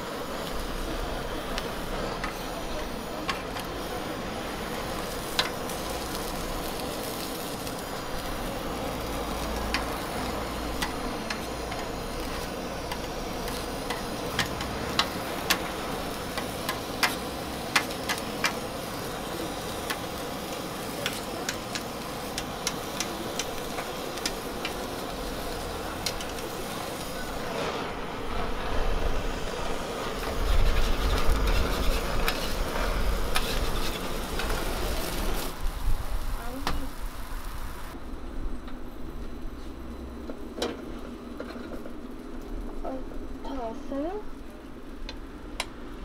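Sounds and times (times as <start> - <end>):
food sizzling on a griddle: 0.0 - 38.0, 39.4 - 46.0
gas blowtorch hissing: 0.0 - 38.0
tongs clicking on griddle: 5.0 - 7.8, 9.4 - 18.8, 19.6 - 26.9.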